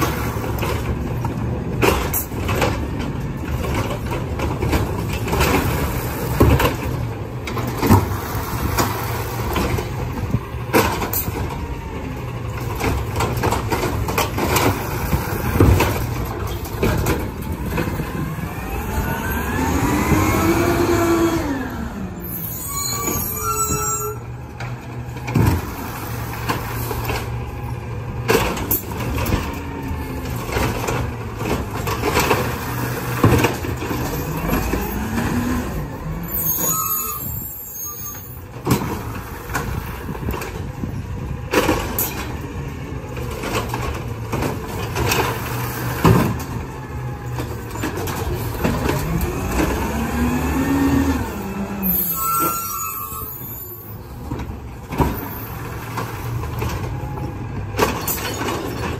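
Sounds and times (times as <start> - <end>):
garbage truck engine revving: 0.0 - 23.2, 24.4 - 37.2, 38.6 - 58.9
hydraulic arm lifting: 12.7 - 27.4.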